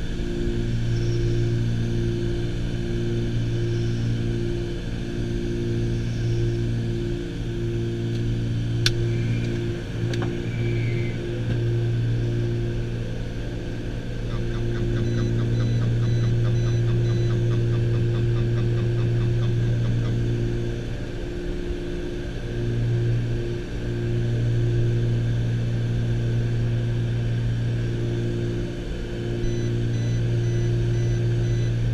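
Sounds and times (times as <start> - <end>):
aircraft piston engines droning: 0.0 - 31.9
rapid short beeps: 14.9 - 17.6, 29.4 - 31.8.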